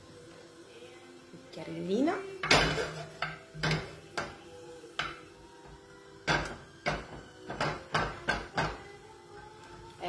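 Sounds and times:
wooden spoon knocking on frying pan: 2.4 - 5.3, 6.2 - 8.9.

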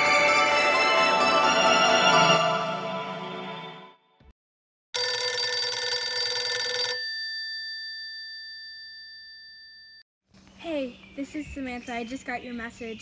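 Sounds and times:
music: 0.0 - 4.3
telephone bell ringing: 5.0 - 10.0.

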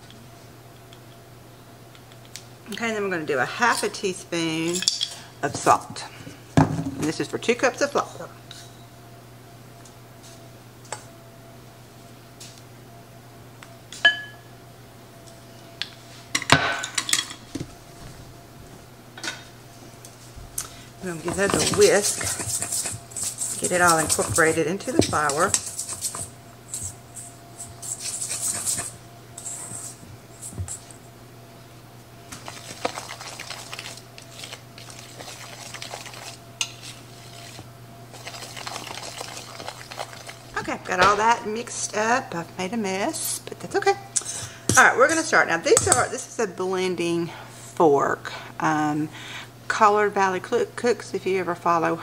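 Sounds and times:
wire whisk scraping metal bowl: 21.0 - 26.8, 27.8 - 30.0, 32.4 - 40.4.

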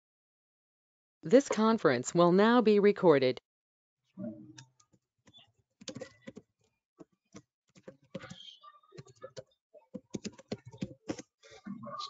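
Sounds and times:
typing on computer keyboard: 5.3 - 6.4, 7.8 - 8.4, 9.0 - 11.3.

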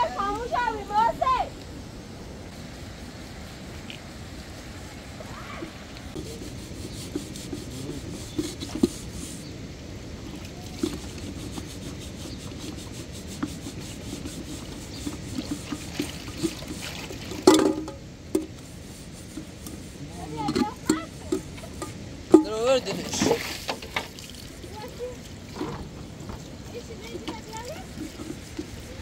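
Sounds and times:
sponge scrubbing metal teapot: 5.6 - 9.5, 10.6 - 29.0
teapot knocking: 17.4 - 18.5.

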